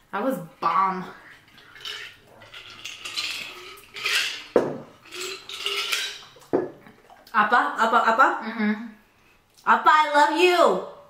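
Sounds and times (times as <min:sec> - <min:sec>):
dishes and utensils clattering: 0:01.2 - 0:07.2.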